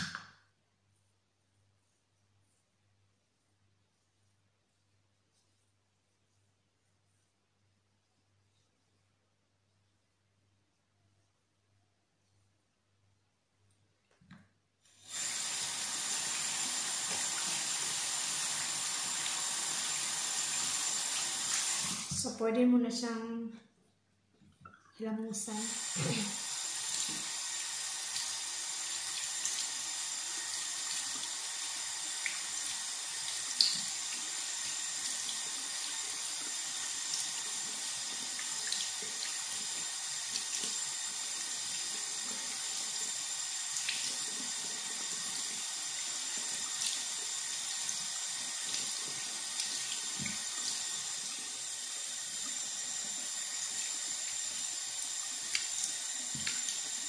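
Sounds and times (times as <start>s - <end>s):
tap running into a sink: 0.0s - 0.4s, 16.4s - 17.8s, 25.8s - 27.4s, 49.6s - 50.8s, 55.5s - 56.9s.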